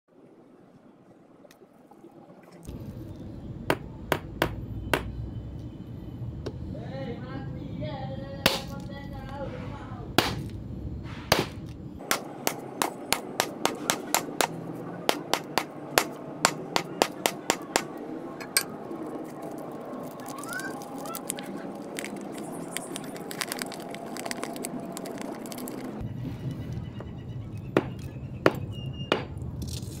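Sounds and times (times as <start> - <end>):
mallet crushing hard candy: 21.2 - 25.8.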